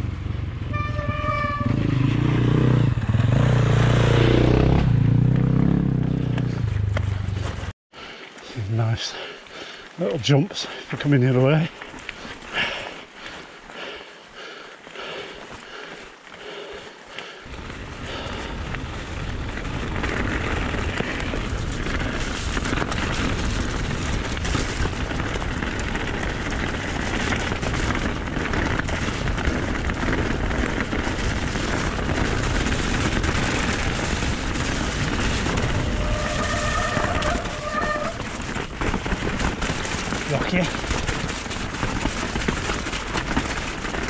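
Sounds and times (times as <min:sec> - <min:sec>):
bike tyres crunching over stones: 0:04.6 - 0:44.0
wind rush on microphone: 0:17.5 - 0:44.0.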